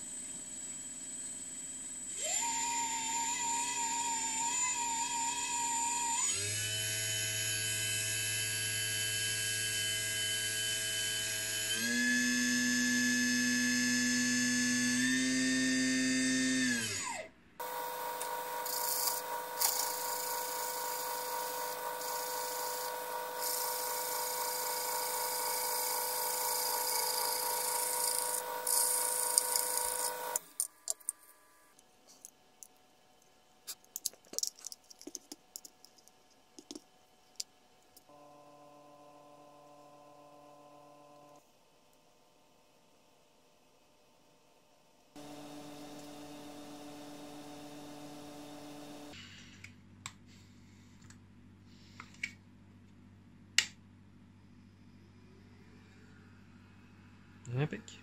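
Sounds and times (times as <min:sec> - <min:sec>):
spindle motor whining: 0:16.6 - 0:30.6, 0:45.2 - 0:49.2
drill press running: 0:17.6 - 0:30.5, 0:45.2 - 0:49.2
clicks of small parts handled: 0:33.7 - 0:38.1.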